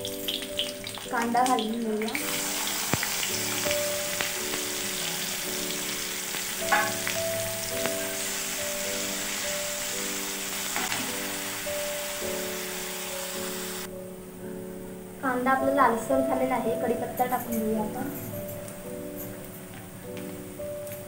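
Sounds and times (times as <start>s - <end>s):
onion sizzling in hot oil: 0.0s - 13.9s
soft background music: 0.0s - 21.0s.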